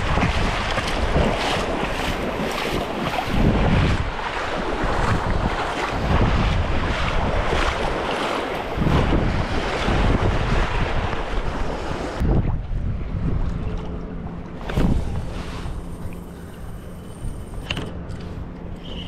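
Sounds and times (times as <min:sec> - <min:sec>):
small surf waves splashing: 0:00.0 - 0:12.3
wind buffeting microphone: 0:00.0 - 0:17.7.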